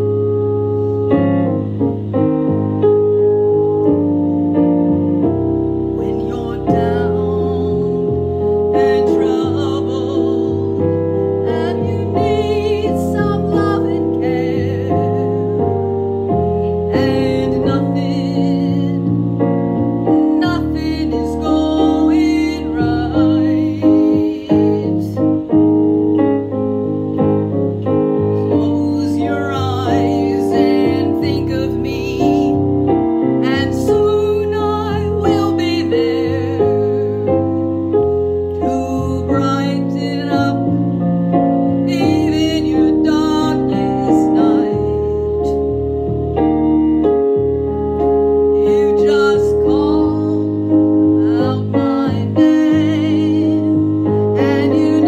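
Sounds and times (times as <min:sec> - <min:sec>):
piano accompaniment: 0:00.0 - 0:55.0
woman singing with vibrato: 0:05.9 - 0:25.6, 0:28.3 - 0:41.0, 0:41.7 - 0:45.8, 0:48.4 - 0:55.0.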